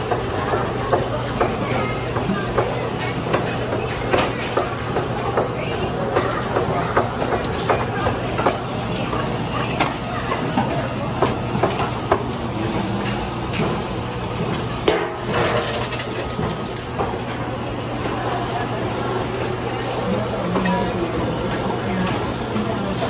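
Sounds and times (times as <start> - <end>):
metal utensils clinking: 15.0 - 17.0.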